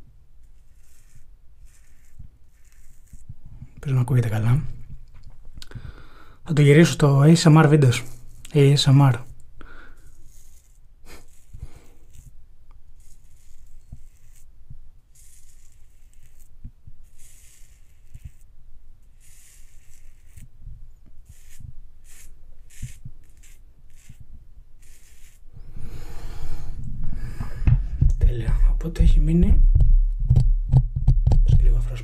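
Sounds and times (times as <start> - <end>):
razor scraping stubble: 0.4 - 5.2, 6.7 - 26.8.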